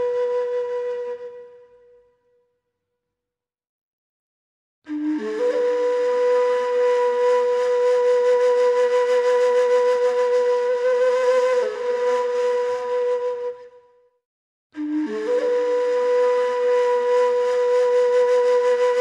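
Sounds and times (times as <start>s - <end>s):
flute-like wind instrument solo: 0.0s - 2.2s, 4.9s - 14.0s, 14.8s - 19.0s.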